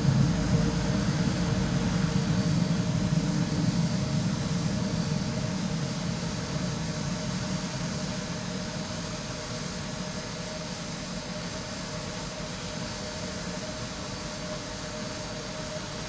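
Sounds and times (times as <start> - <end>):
rolling thunder through window: 0.0 - 5.8.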